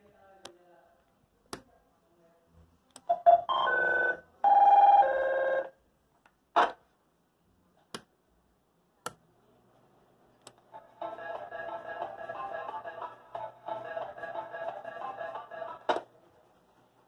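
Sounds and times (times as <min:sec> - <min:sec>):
electronic call tones: 0:03.1 - 0:05.8.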